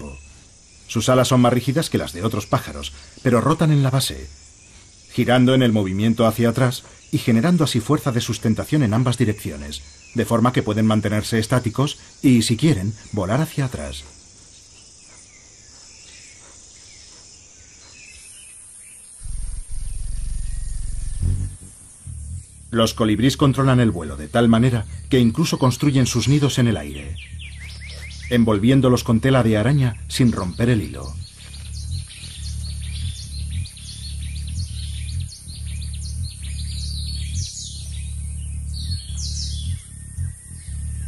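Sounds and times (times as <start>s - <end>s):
faint bird chirps: 0.0s - 41.0s
insect trill: 0.0s - 41.0s
loud low buzz: 19.2s - 41.0s.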